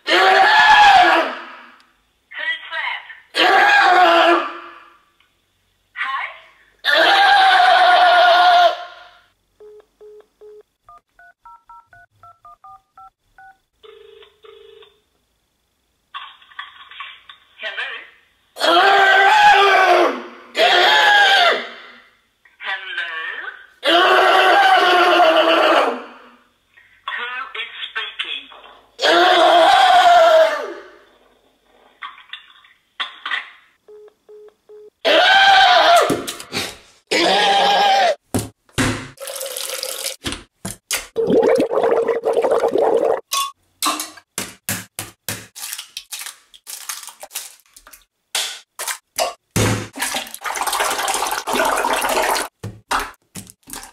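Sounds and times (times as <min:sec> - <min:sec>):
phone ringing tone: 0:11.2 - 0:15.0.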